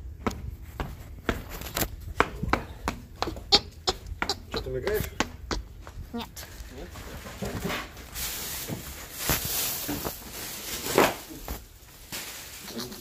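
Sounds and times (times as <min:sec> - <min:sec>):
sneaker footsteps on wood floor: 0:00.0 - 0:07.7
rustling: 0:06.1 - 0:13.0.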